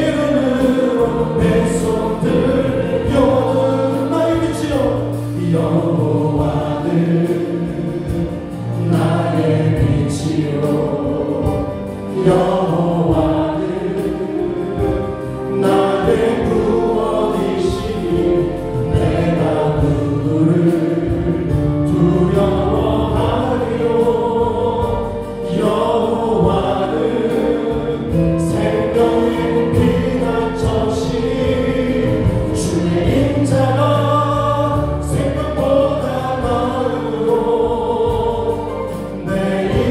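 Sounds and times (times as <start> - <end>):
group singing gospel song: 0.0 - 39.9
live band playing: 0.0 - 39.9.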